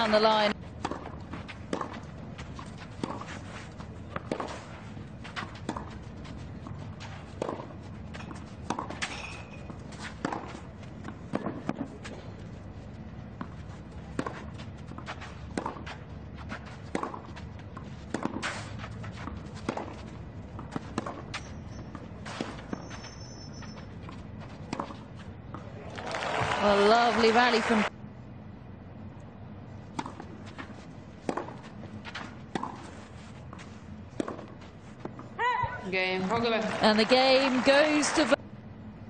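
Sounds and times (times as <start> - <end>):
racket hitting tennis ball: 0.0 - 12.3, 13.4 - 25.6, 29.9 - 35.4.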